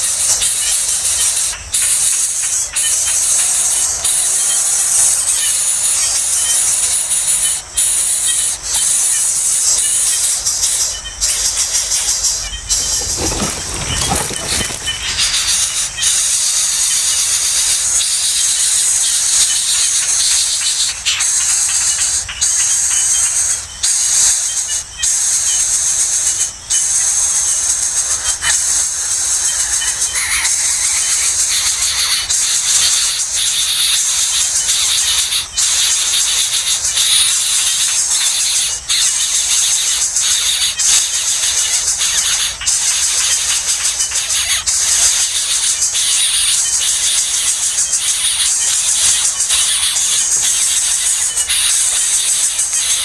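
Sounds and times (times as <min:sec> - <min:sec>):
nestlings hissing begging call: 0:00.0 - 0:53.0
nestlings hissing: 0:12.7 - 0:15.9.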